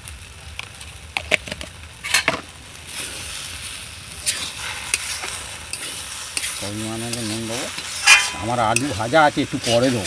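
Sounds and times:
food sizzling: 0:00.0 - 0:10.0
metal spatula scraping iron pan: 0:04.2 - 0:10.0.

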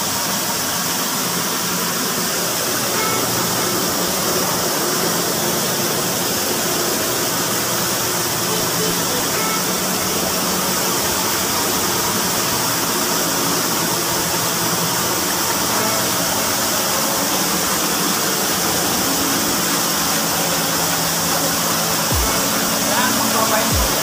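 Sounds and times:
water spraying into tank: 0:00.0 - 0:24.0.

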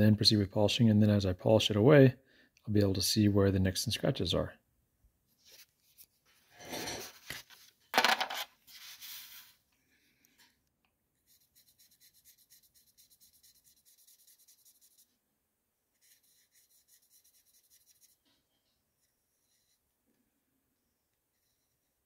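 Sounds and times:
marker scratching on stone: 0:11.3 - 0:15.1, 0:16.0 - 0:18.2.

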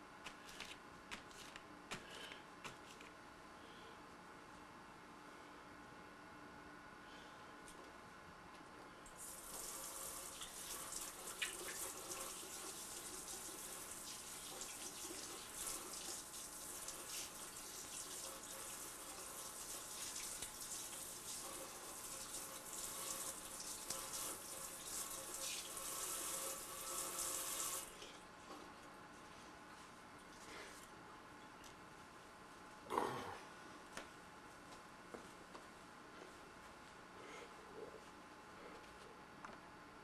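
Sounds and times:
tap water running into sink: 0:09.2 - 0:27.9.

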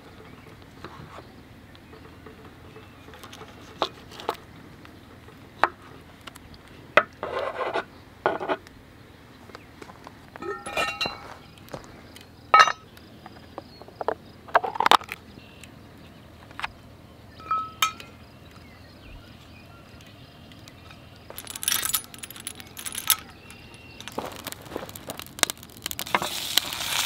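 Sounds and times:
rattles: 0:10.4 - 0:11.4, 0:21.3 - 0:26.3
ringing metallic clink: 0:10.4 - 0:11.4, 0:12.5 - 0:12.8, 0:17.4 - 0:18.2, 0:21.3 - 0:24.2.

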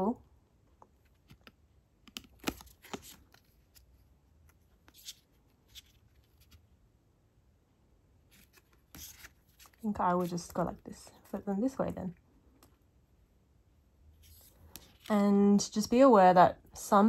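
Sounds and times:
paper cards sliding and flipping: 0:02.4 - 0:06.6, 0:08.3 - 0:10.6, 0:14.2 - 0:15.1.

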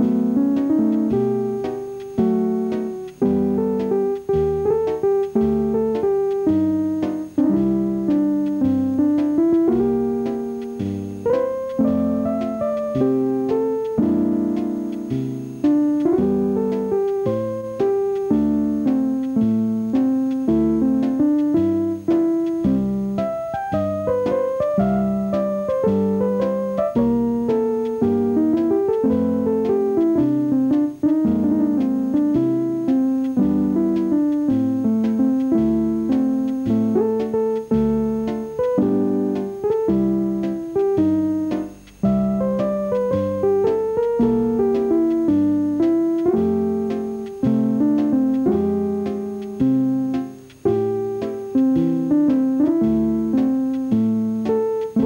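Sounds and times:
piano music: 0:00.0 - 0:55.0.

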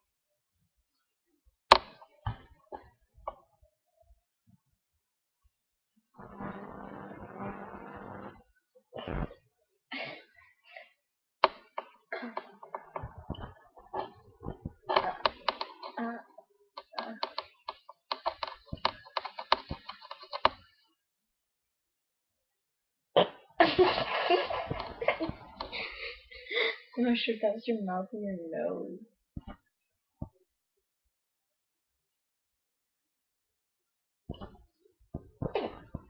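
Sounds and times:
girls giggling: 0:23.6 - 0:27.0.

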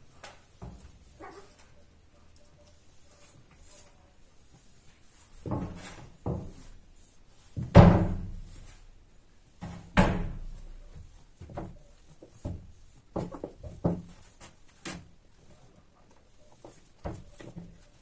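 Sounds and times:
dull thumps and knocks: 0:09.6 - 0:14.2.

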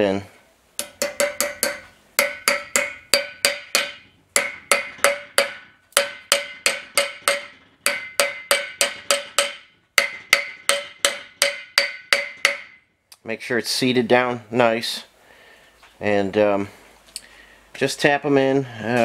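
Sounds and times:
hammer striking metal: 0:00.8 - 0:12.9.

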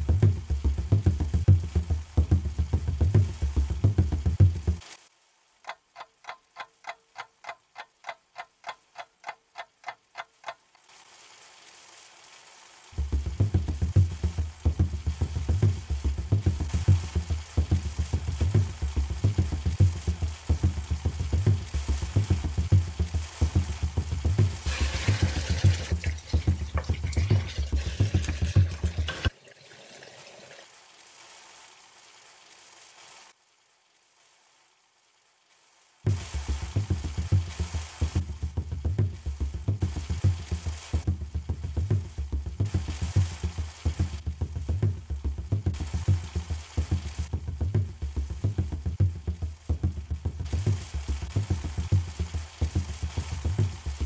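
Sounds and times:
steady low beat: 0:00.0 - 0:04.9, 0:13.0 - 0:29.3, 0:36.1 - 0:54.0
faint hiss: 0:00.0 - 0:54.0.

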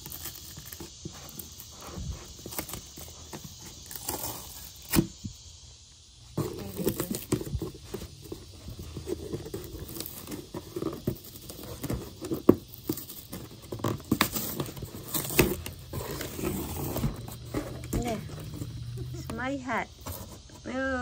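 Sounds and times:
fingers scratching cardboard box tape: 0:00.0 - 0:05.1, 0:06.4 - 0:19.4
tape and cardboard tearing: 0:00.0 - 0:05.3, 0:06.4 - 0:20.6.

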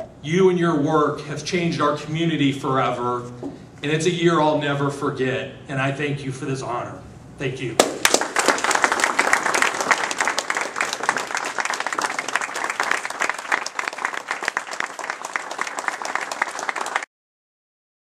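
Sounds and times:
audience applauding: 0:07.8 - 0:17.1.

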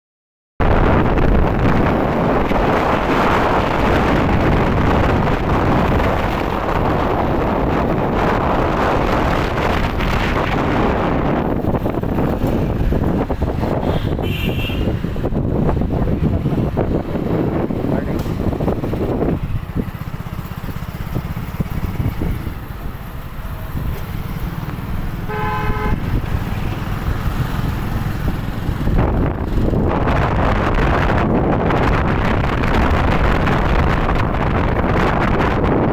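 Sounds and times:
cars driving along road: 0:00.6 - 0:35.9
motorcycle riding rumble: 0:00.6 - 0:35.9
wind buffeting microphone: 0:00.6 - 0:35.9
vehicle horn: 0:13.7 - 0:15.0, 0:25.2 - 0:26.3.

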